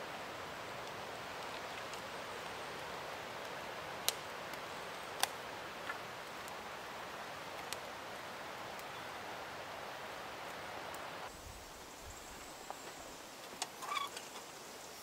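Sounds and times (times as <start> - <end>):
steady background hiss: 0.0 - 15.0
campfire popping: 0.1 - 11.3.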